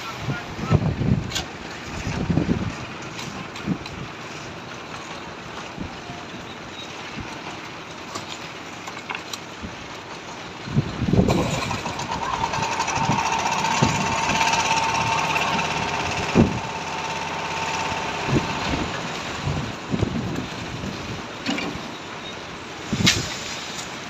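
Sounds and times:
machine engine whining: 10.8s - 20.1s.

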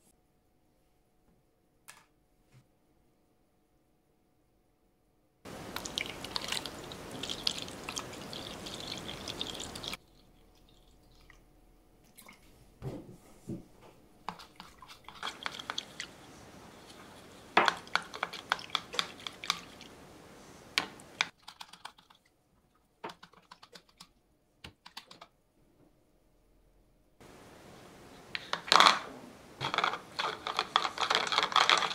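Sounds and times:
brush scrubbing in water: 5.5s - 10.2s, 14.2s - 21.4s
water pouring into plastic bowl: 5.5s - 11.5s, 14.3s - 20.1s
brush knocking against bowl: 14.3s - 16.1s, 16.8s - 19.8s.

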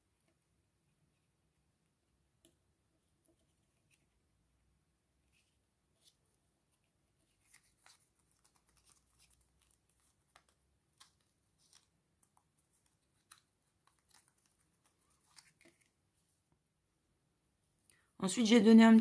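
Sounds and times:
faint paper rustles: 5.2s - 16.4s.

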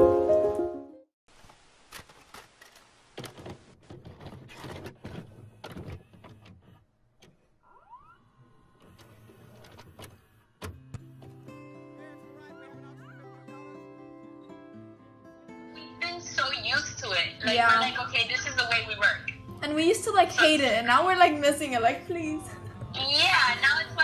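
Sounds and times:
tape hiss: 1.3s - 3.3s.

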